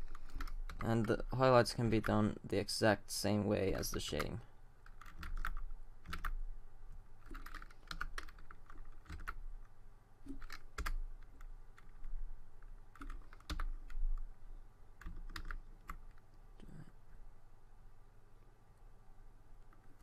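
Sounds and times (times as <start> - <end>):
keyboard and mouse clicks: 0.0 - 2.1, 3.7 - 6.4, 7.2 - 9.4, 10.2 - 14.3, 15.0 - 16.4
low steady hum: 0.0 - 20.0.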